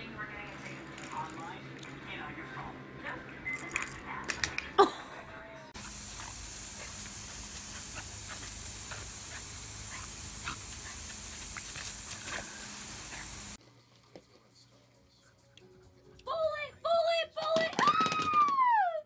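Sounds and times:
garden hose spraying water: 0:05.8 - 0:13.6.

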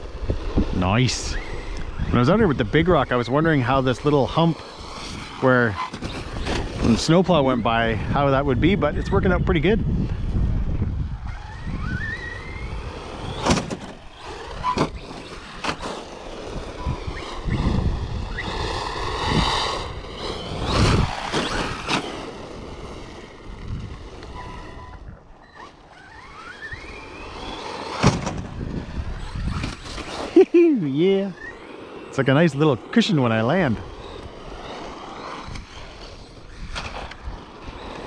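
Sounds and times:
electric motor whining: 0:00.0 - 0:38.0
toy truck landing thuds: 0:13.3 - 0:14.0, 0:27.9 - 0:28.6.

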